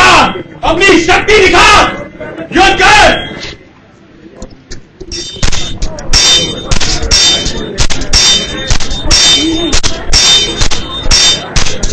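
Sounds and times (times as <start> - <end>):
swords clashing: 5.1 - 11.9.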